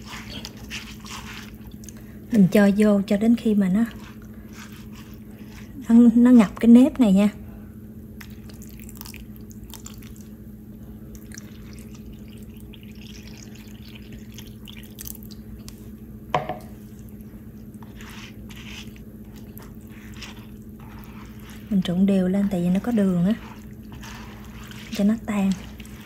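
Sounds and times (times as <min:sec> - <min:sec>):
spatula squishing wet rice: 0:00.0 - 0:02.0, 0:03.4 - 0:06.7, 0:16.7 - 0:26.0
steady low hum: 0:00.0 - 0:26.0
water trickling onto rice: 0:11.2 - 0:15.6.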